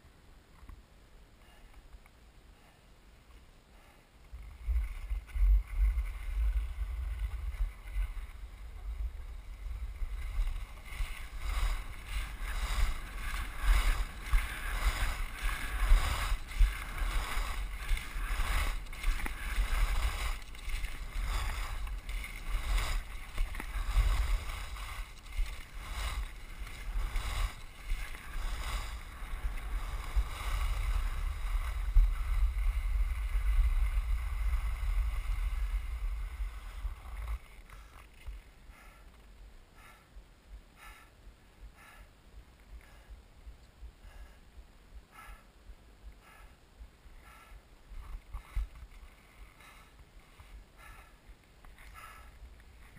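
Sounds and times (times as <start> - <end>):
skis scraping on snow: 3.8 - 39.0
wind buffeting microphone: 4.3 - 38.4.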